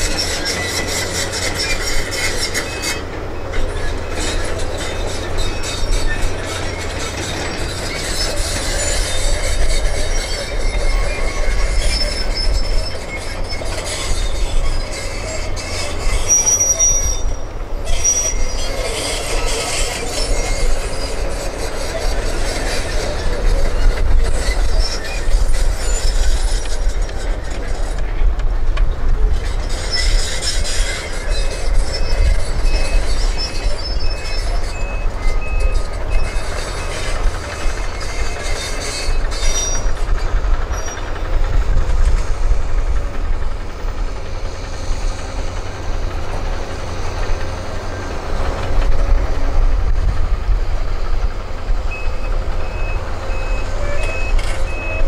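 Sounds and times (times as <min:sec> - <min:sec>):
excavator diesel engines rumbling: 0:00.0 - 0:55.0
reversing alarm beeping: 0:51.9 - 0:55.0.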